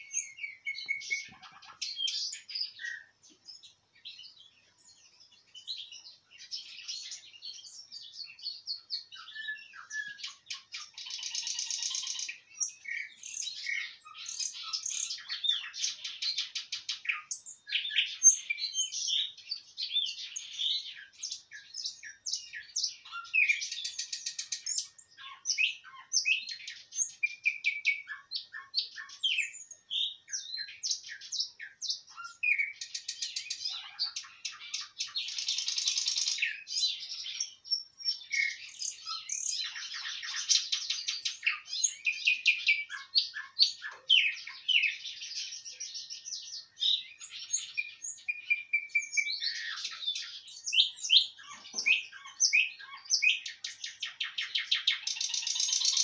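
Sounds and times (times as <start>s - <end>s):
nightingale singing: 0.0s - 56.0s.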